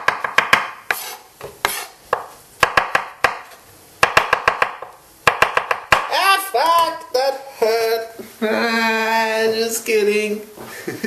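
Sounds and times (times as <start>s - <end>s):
knife chopping on wooden board: 0.0s - 6.1s.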